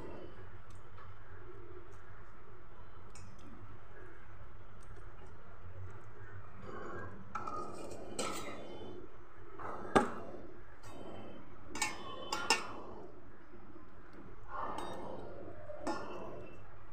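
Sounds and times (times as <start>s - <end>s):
steady low hum: 0.0s - 16.9s
metal spatula scraping a pot: 6.7s - 8.8s, 10.8s - 13.0s.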